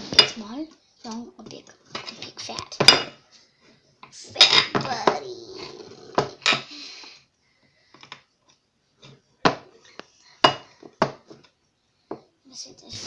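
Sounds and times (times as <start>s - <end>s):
hard objects knocking on counter: 10.5s - 11.5s.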